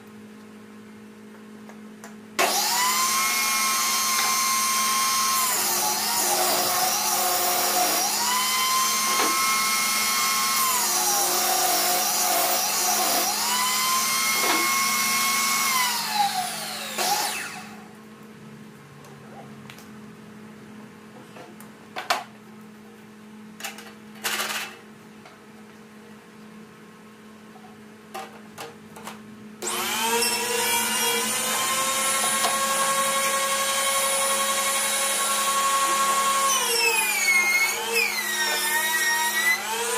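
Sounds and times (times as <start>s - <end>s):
power tool motor whine: 2.4s - 17.9s, 29.6s - 39.9s
table saw motor whine: 2.4s - 17.9s, 29.6s - 39.9s.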